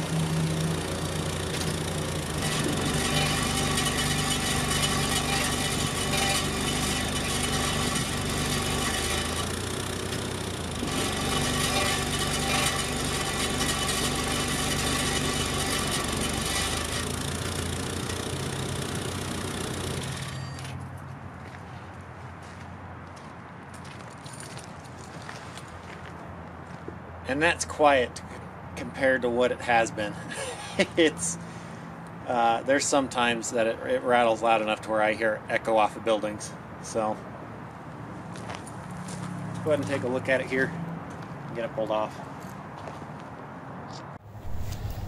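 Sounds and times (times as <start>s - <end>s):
exhaust rattling: 0.0s - 20.6s.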